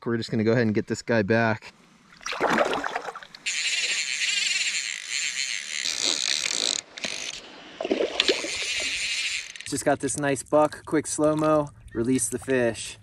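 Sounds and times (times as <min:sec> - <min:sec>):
water splash: 0:02.1 - 0:03.5, 0:07.8 - 0:08.9
fly reel buzzing: 0:03.0 - 0:09.8.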